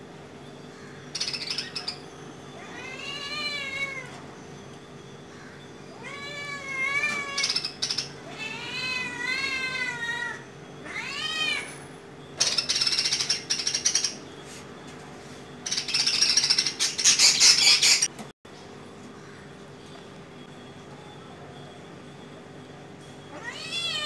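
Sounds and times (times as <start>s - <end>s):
cat meowing: 2.6s - 4.1s, 6.0s - 7.6s, 8.2s - 11.8s, 23.3s - 24.0s.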